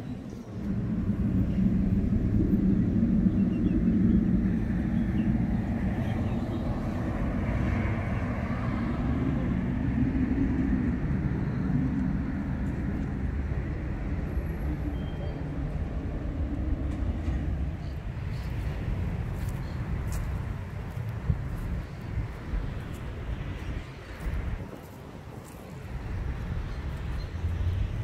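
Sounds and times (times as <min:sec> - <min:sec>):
cars passing: 0:00.0 - 0:28.0.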